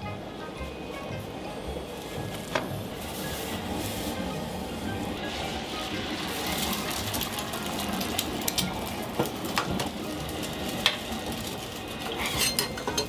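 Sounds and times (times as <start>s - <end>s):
eggs sizzling on griddle: 2.0s - 13.0s.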